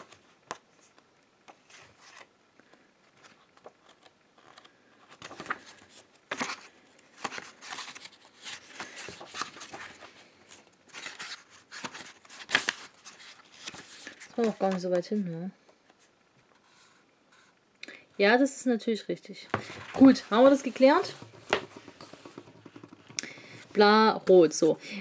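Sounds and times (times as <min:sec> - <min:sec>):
book pages rustling: 0:00.0 - 0:15.2, 0:19.5 - 0:24.8
pages flapping over: 0:03.2 - 0:10.2, 0:10.9 - 0:14.9, 0:19.6 - 0:23.7.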